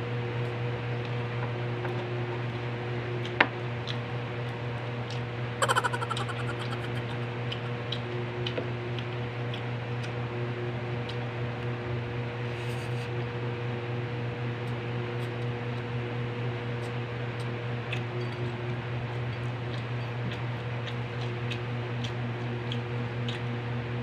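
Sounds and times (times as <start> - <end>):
clicks of eating by hand: 5.6 - 7.6, 19.7 - 23.5
mouth sound: 5.6 - 7.8.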